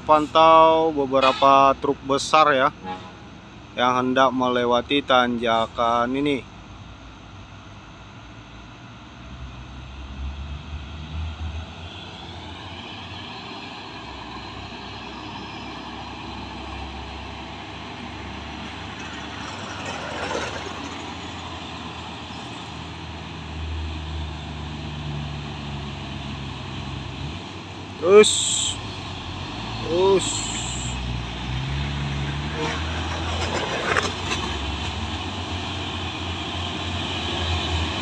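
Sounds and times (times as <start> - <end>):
diesel trucks climbing: 0.0 - 38.0.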